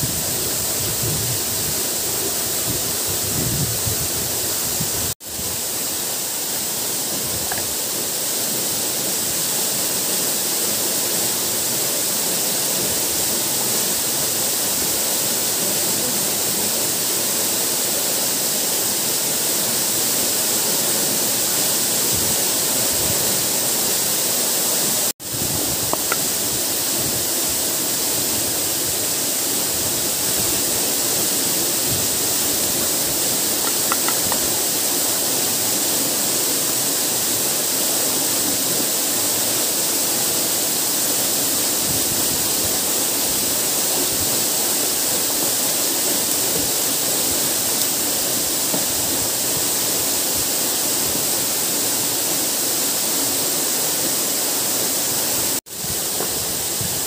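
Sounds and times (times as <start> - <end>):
waterfall and stream rushing: 0.0 - 57.0.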